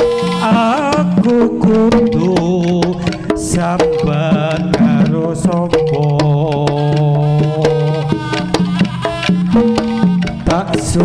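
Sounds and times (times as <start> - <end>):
hand drum strokes: 1.9 - 8.0
held pitched melody line: 4.4 - 6.5.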